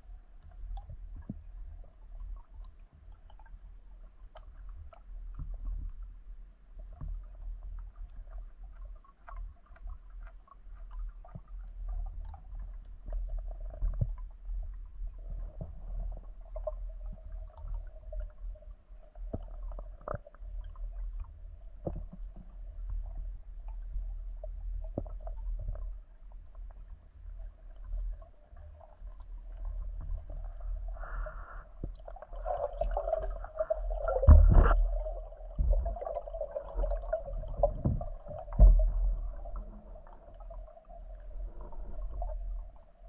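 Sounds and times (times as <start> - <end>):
muffled underwater rumble: 0.0 - 43.0
faint steady hum: 10.6 - 43.0.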